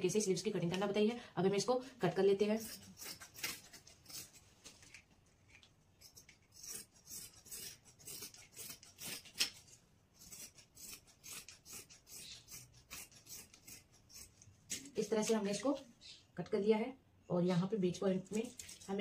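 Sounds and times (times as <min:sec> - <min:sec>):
shears snipping fabric: 0:02.4 - 0:04.4, 0:06.0 - 0:15.8.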